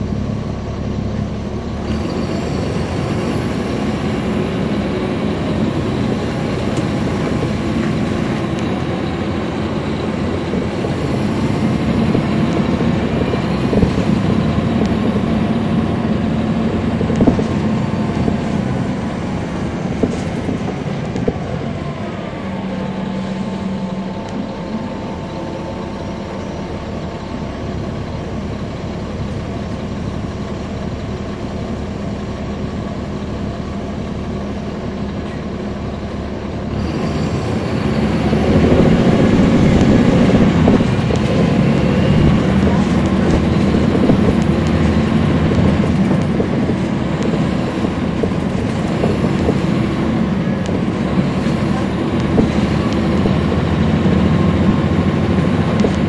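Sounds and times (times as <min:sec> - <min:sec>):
bus diesel engine drone: 0:00.0 - 0:56.0
steady higher tone: 0:17.6 - 0:30.1.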